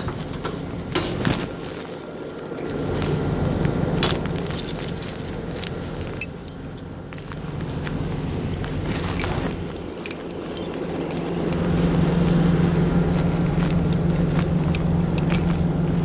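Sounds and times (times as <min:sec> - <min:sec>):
heavy truck engine running: 0:00.0 - 0:16.0
light metallic clinks and jingles: 0:04.0 - 0:12.3.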